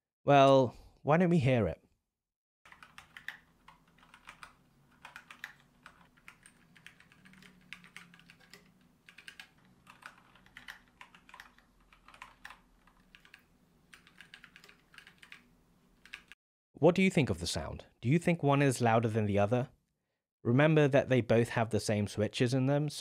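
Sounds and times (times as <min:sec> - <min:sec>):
quiet mechanical keyboard typing: 0:02.7 - 0:16.4.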